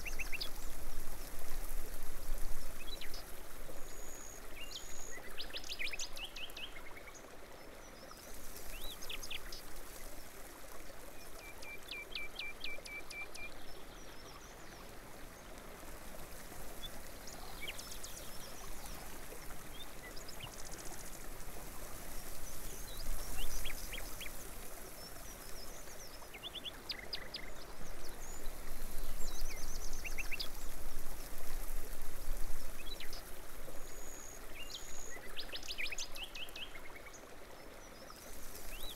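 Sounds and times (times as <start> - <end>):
running water: 0.0 - 38.9.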